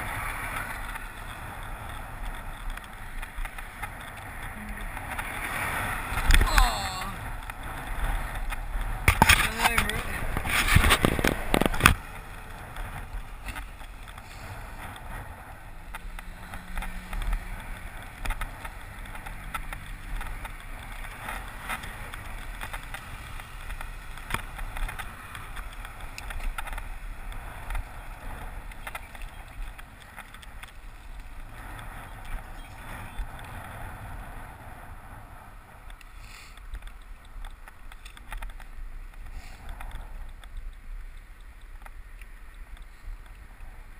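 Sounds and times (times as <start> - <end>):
wind on microphone: 0.0 - 22.8
bicycle tyres rumbling on tarmac: 0.0 - 43.9
small rattles and clicks: 0.3 - 5.3, 7.2 - 33.8, 35.8 - 43.9.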